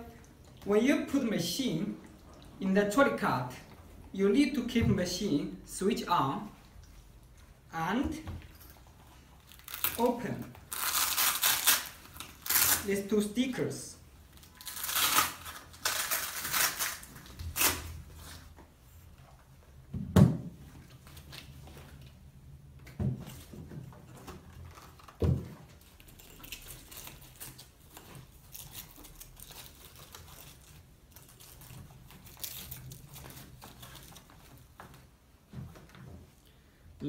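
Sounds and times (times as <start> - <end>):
fabric rustling and crinkling: 23.2 - 36.4.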